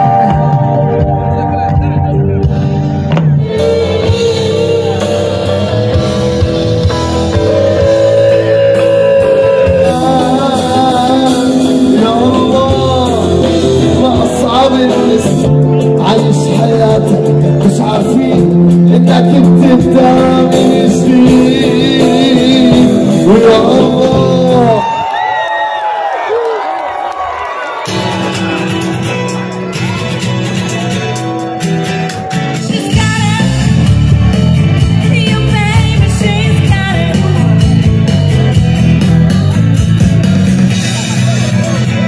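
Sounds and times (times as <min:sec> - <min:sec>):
person singing: 0:00.0 - 0:24.9, 0:32.0 - 0:34.1, 0:34.8 - 0:37.9
rock band playing live: 0:00.0 - 0:25.3, 0:27.7 - 0:42.0.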